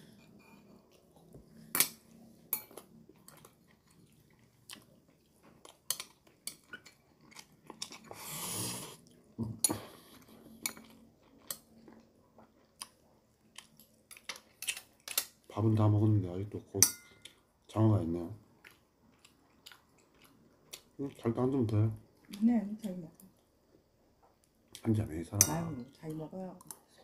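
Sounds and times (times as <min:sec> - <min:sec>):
man chewing food: 0:00.0 - 0:15.5, 0:17.1 - 0:17.7, 0:18.4 - 0:21.2
longer noisy eating sound: 0:00.2 - 0:26.0.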